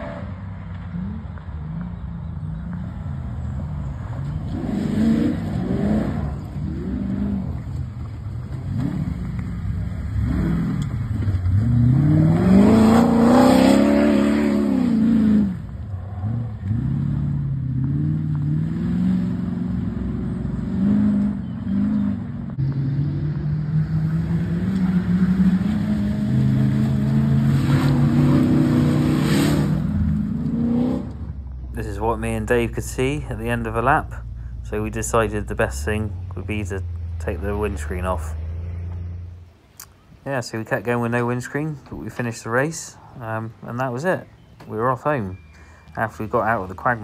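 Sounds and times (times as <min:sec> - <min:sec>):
engine revving hard: 0:04.5 - 0:07.5, 0:11.5 - 0:15.6, 0:16.2 - 0:31.3.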